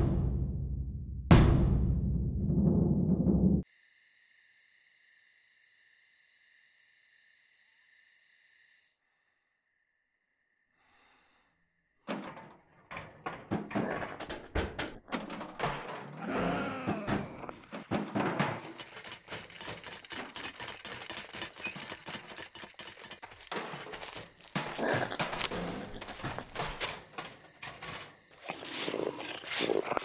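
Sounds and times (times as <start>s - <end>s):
night insects chirping: 3.6s - 12.0s, 16.6s - 30.0s
animal scratching on tin roof: 17.7s - 30.0s.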